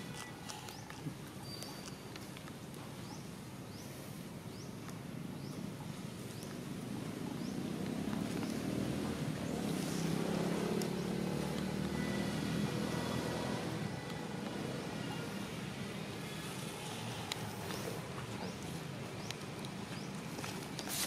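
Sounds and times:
motor vehicle engine drone: 6.6s - 19.2s.

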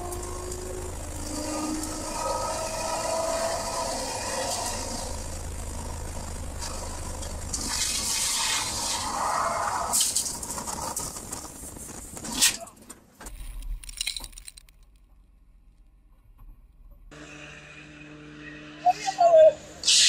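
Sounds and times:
race car engine running: 0.0s - 12.2s.

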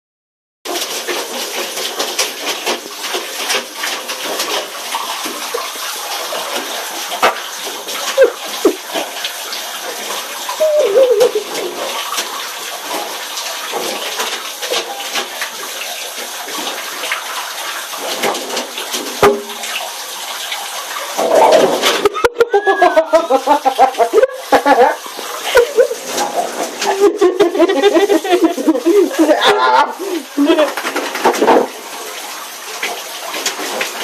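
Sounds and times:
water splashing in a bathtub: 0.7s - 34.0s
puppy crying: 10.6s - 11.5s, 21.3s - 24.9s, 28.6s - 30.7s.

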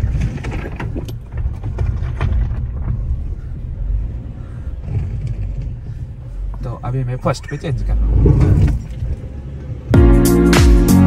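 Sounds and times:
suspension and gravel knocks: 0.0s - 7.1s
low rumble of tyres and engine: 0.0s - 10.3s.

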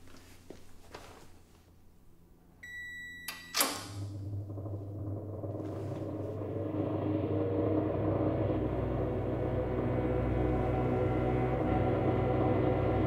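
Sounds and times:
oven electronic beep: 2.6s - 3.9s
low rumbling horror drone: 4.2s - 13.0s.

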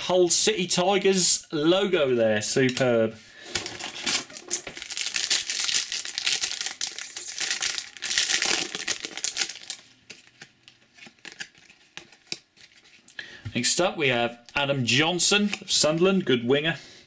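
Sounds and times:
foil packet crinkling: 3.6s - 13.0s.

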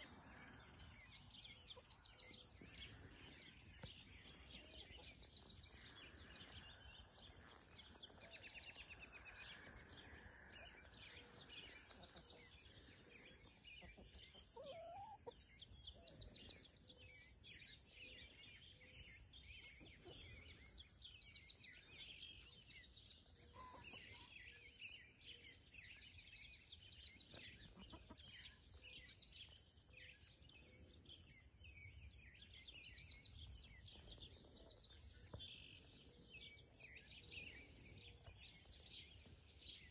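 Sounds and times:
hens clucking: 13.7s - 15.4s, 27.6s - 28.3s.

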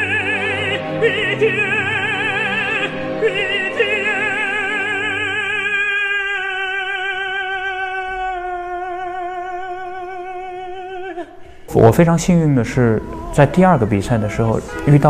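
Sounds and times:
orchestral accompaniment: 0.0s - 7.5s, 11.7s - 15.0s
operatic tenor singing: 0.0s - 15.0s.

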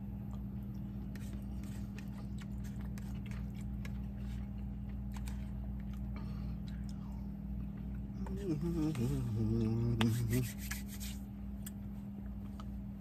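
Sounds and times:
man chewing food: 0.0s - 10.2s
steady low hum: 0.0s - 13.0s
fork scraping paper plate: 1.1s - 4.5s, 9.9s - 11.2s.

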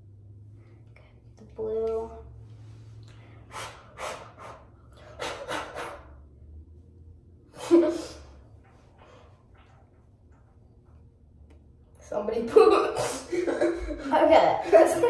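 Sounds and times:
breathy puffs of air: 2.6s - 6.2s.

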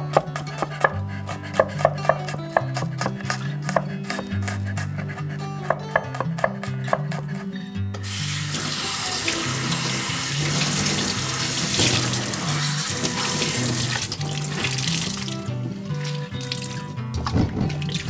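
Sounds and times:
tap water splashing into a sink: 8.0s - 18.0s.

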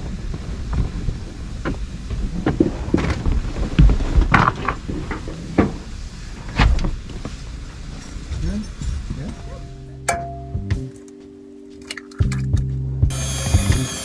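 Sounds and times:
wind rumble on microphone: 0.0s - 9.9s.

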